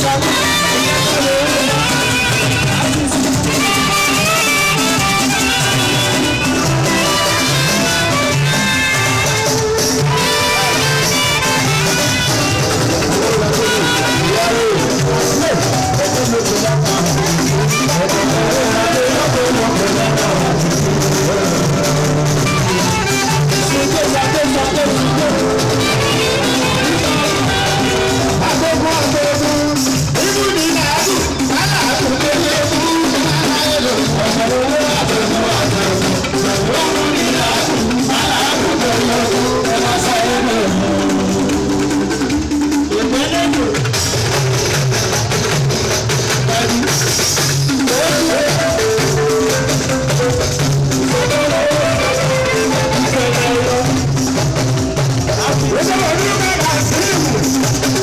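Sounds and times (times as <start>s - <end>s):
person singing: 0.0s - 42.2s, 47.8s - 58.0s
saxophone: 0.0s - 42.8s, 46.3s - 58.0s
live band playing: 0.0s - 58.0s.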